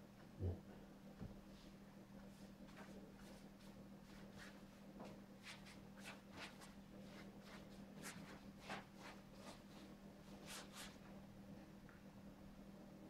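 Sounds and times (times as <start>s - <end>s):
steady low hum: 0.0s - 13.0s
paint strokes on canvas: 1.5s - 11.2s.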